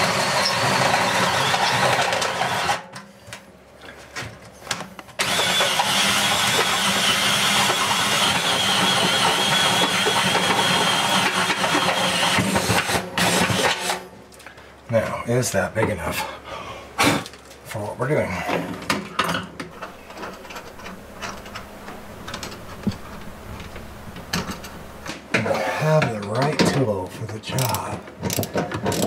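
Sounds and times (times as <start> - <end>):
drill cutting through metal: 0.0 - 2.8, 5.2 - 14.0.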